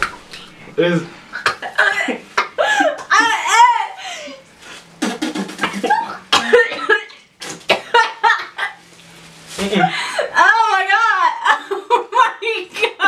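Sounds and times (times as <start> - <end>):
woman laughing: 1.6 - 4.4, 5.8 - 7.2, 7.8 - 8.8, 11.0 - 13.0
woman coughing: 5.8 - 7.1.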